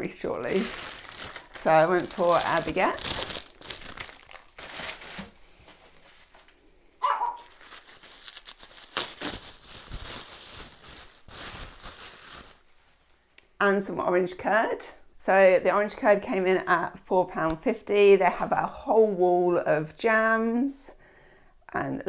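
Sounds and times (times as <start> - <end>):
paper bags rustling and crinkling: 0.0 - 13.2.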